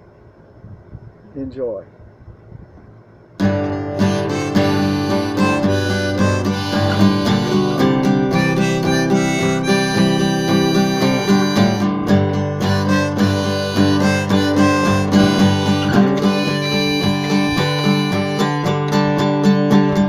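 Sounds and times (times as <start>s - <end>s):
harmonica holding long notes: 3.4s - 19.5s
strummed acoustic guitar: 3.4s - 20.0s.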